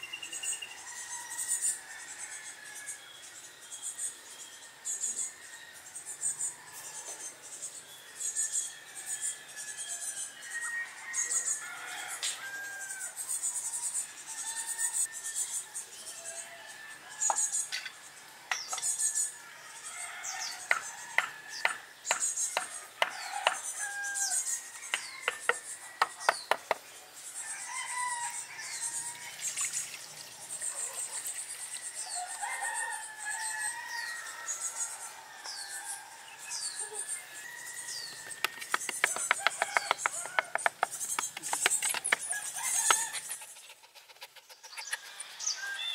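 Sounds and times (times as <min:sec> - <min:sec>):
small birds chirping: 0:00.0 - 0:45.9
tool knocking on bamboo trough: 0:25.3 - 0:26.8, 0:38.4 - 0:42.2.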